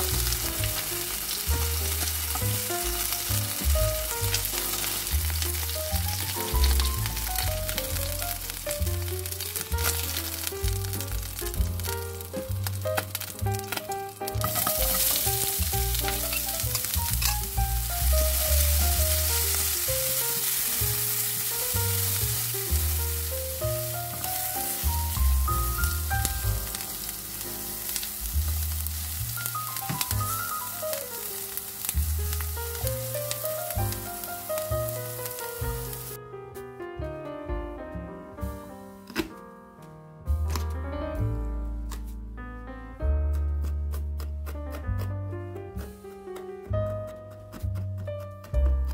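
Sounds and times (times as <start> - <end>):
onions sizzling in hot oil: 0.0 - 36.2.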